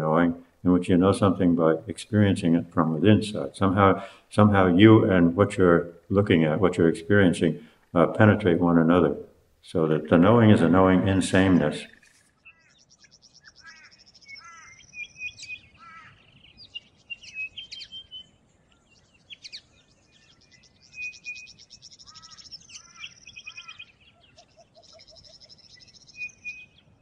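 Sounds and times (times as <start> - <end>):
birds trilling: 9.7 - 27.0
bird chirps and whistles: 12.9 - 15.7, 16.6 - 18.3, 20.5 - 23.8, 24.8 - 26.8.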